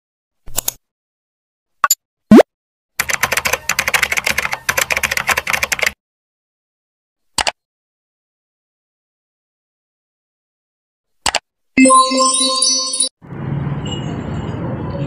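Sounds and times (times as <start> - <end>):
computer keyboard typing: 3.0 - 6.0
single click: 7.4 - 7.6.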